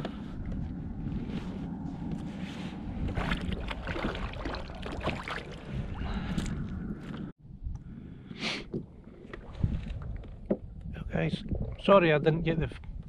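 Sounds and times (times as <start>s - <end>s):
wind rumbling on microphone: 0.0s - 13.0s
clicks and knocks on hull: 8.7s - 10.9s.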